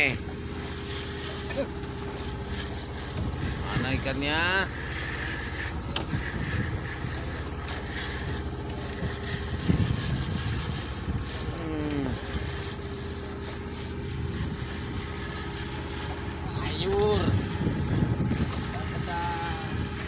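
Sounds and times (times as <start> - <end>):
boat engine idling: 0.0 - 20.0
person calling out: 11.5 - 12.2.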